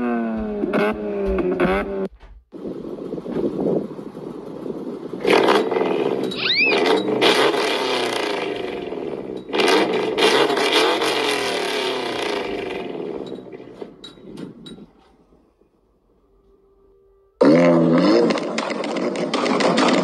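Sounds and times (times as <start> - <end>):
car engine revving: 0.0 - 14.7
exhaust crackles: 0.0 - 15.7, 17.4 - 20.0.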